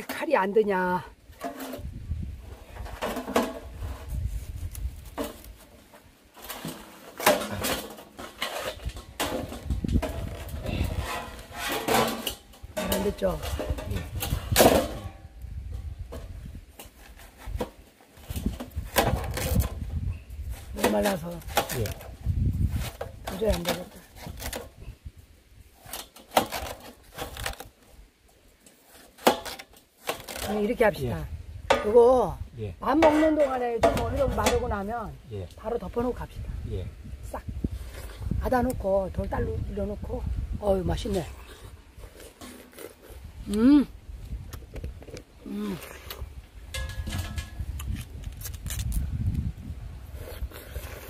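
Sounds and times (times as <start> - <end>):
biting and slurping watermelon: 41.3 - 46.4, 47.1 - 51.0
crunching bites into watermelon: 42.0 - 43.7, 47.7 - 49.4, 50.1 - 51.0.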